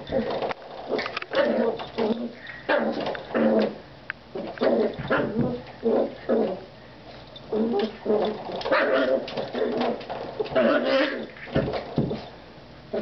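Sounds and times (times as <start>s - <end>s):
puppy growling and yipping: 0.1s - 6.7s, 7.5s - 11.5s.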